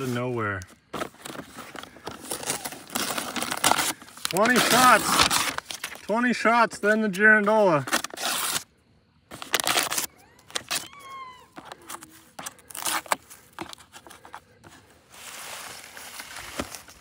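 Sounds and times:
cardboard box rustling and clicking: 0.8 - 6.0.

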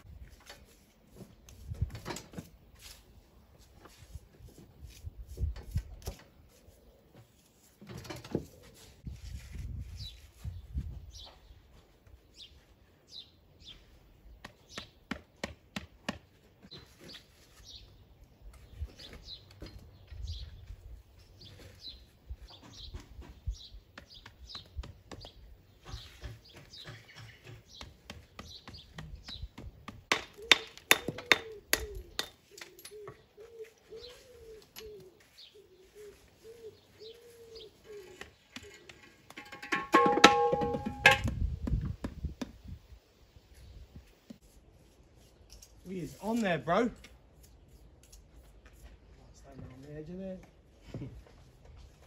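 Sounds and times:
small birds chirping: 3.8 - 15.5, 16.2 - 39.3.

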